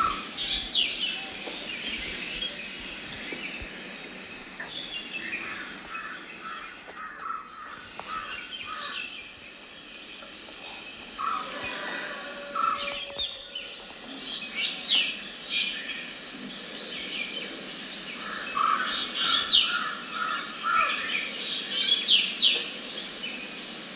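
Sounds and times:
small birds chirping: 0:00.0 - 0:11.8
outdoor background noise: 0:00.0 - 0:23.9.

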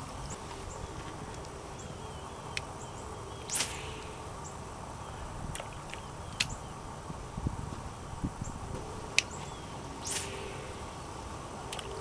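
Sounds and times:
insects chirping: 0:00.0 - 0:12.0
fishing rod swishing: 0:03.4 - 0:04.3, 0:09.4 - 0:11.0.

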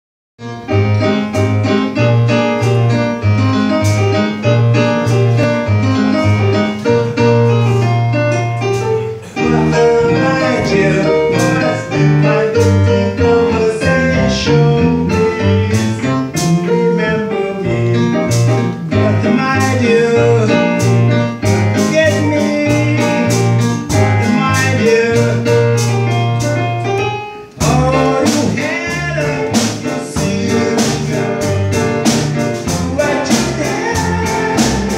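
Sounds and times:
drum kit: 0:00.4 - 0:34.9
electric bass line: 0:00.4 - 0:34.9
keyboards: 0:00.4 - 0:34.9.

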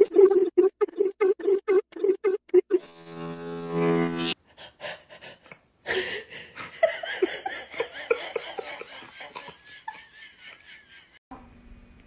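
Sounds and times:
person laughing: 0:00.0 - 0:01.6, 0:04.9 - 0:11.2.

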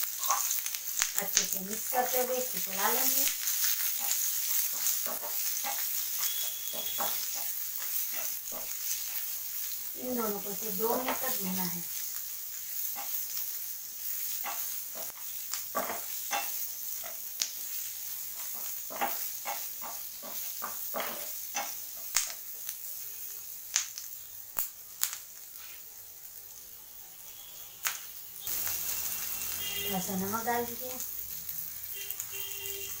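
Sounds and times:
vegetables sizzling in frying pan: 0:00.0 - 0:33.0
spatula scraping a pan: 0:03.6 - 0:09.2.

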